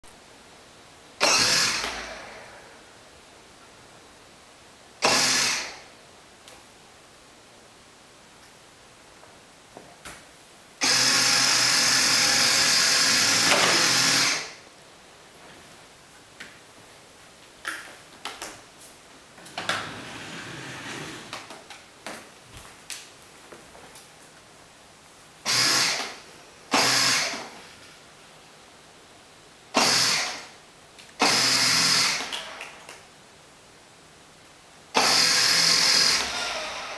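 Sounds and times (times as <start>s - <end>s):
toy electric motor whirring: 1.2s - 2.2s, 5.0s - 5.8s, 10.8s - 14.6s, 25.5s - 27.5s, 29.8s - 30.5s, 31.2s - 32.6s, 35.0s - 36.9s.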